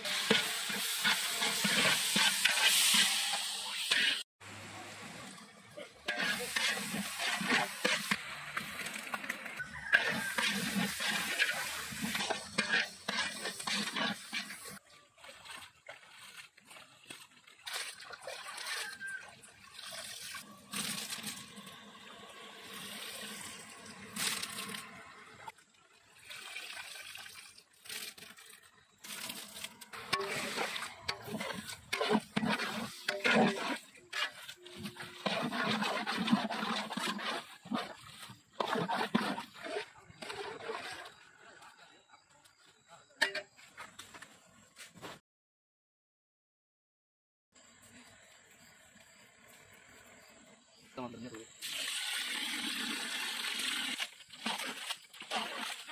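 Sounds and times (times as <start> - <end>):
metal spoon scraping a pot: 0.0 - 4.2, 6.0 - 14.8, 29.0 - 41.3.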